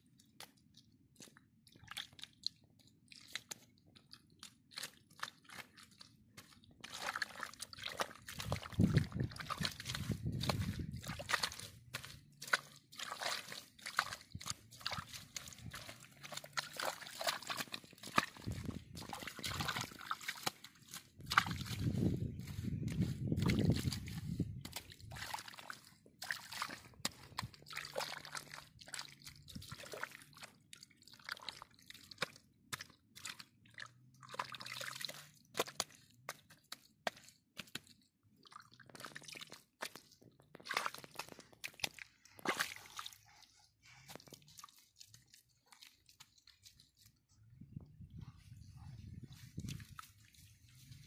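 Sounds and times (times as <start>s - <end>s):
water splashing and sloshing: 0.0s - 51.0s.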